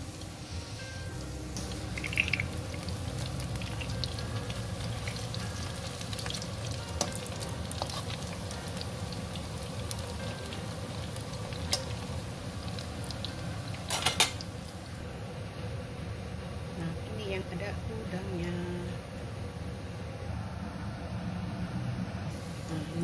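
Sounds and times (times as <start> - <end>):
oil sizzling and crackling: 0.0 - 15.0.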